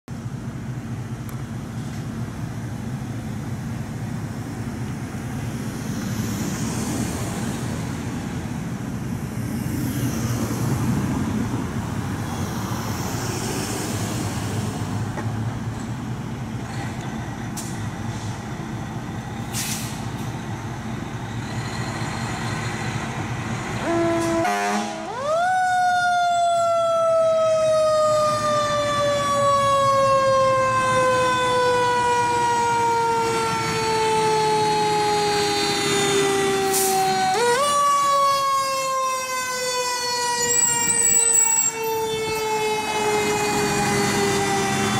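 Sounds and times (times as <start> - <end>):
street traffic passing: 0.1 - 44.9
fire engine siren wailing: 17.2 - 44.9.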